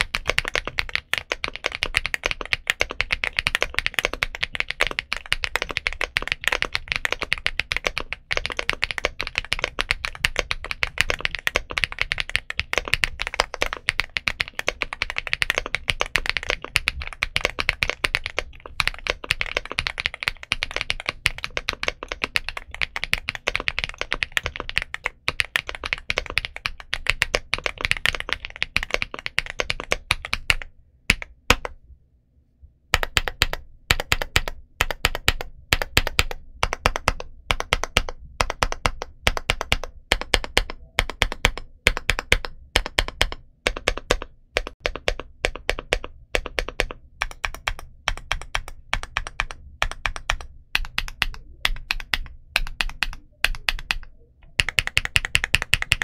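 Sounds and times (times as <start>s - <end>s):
mechanical keyboard typing: 0.0s - 31.8s, 32.9s - 56.0s.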